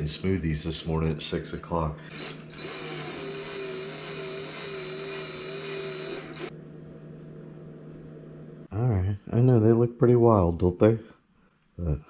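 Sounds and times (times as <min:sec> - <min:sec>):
cordless drill whining: 0:02.1 - 0:06.5.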